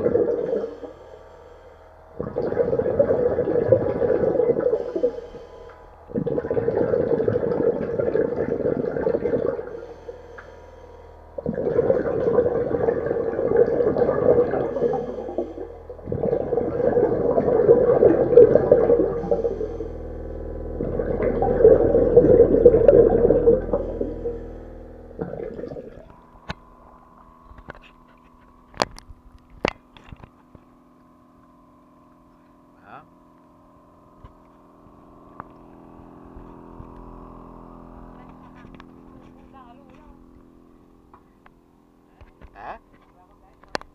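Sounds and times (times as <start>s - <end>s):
regulator bubbling underwater: 0.0s - 30.0s
faint steady hum: 0.0s - 43.9s.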